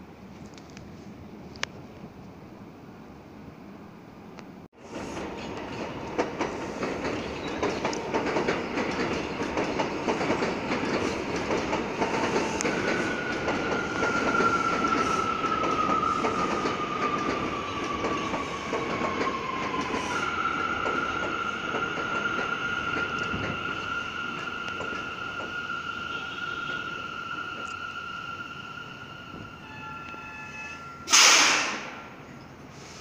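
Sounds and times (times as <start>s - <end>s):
subway train rumble: 0.0s - 33.0s
wheels clattering over rail joints: 5.0s - 14.5s.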